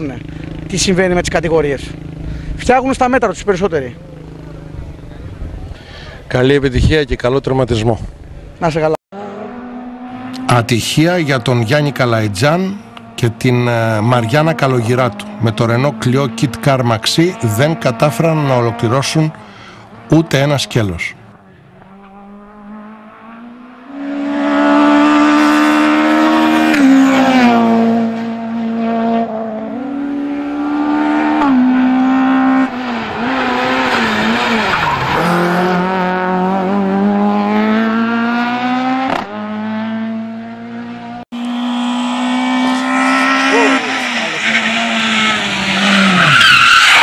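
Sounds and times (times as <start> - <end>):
rally car engine revving: 9.2 - 47.0
tyres squealing: 41.6 - 47.0.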